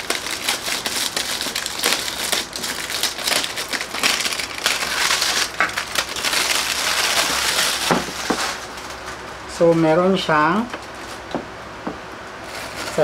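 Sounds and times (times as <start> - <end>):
plastic bag crinkling: 0.0 - 9.8, 12.4 - 13.0.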